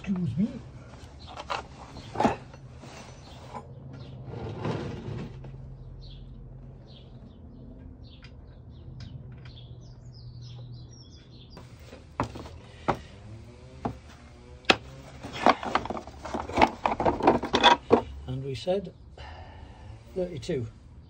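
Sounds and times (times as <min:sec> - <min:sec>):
hand tools clicking and knocking: 0:12.2 - 0:13.2, 0:14.7 - 0:18.2.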